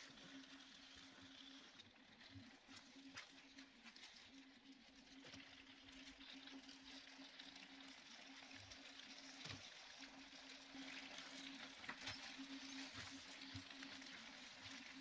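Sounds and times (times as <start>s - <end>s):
pasta sauce simmering in a pan: 0.0s - 15.0s.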